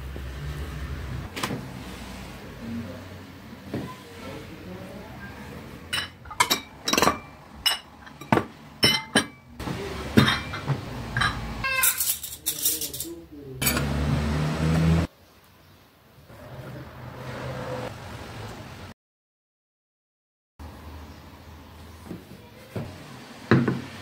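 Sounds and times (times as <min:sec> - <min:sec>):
plates clinking on stone table: 0:05.9 - 0:09.4, 0:10.2 - 0:13.9
metal cutlery clinking: 0:10.2 - 0:13.9.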